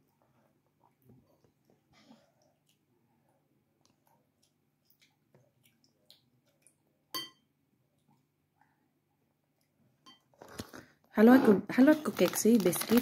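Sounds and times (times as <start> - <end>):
packet crinkling: 10.4 - 10.9, 11.7 - 13.0.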